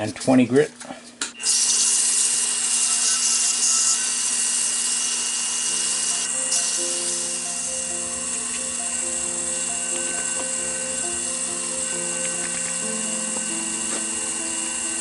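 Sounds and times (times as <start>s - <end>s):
wood lathe whine: 1.4s - 15.0s
background music: 6.0s - 15.0s.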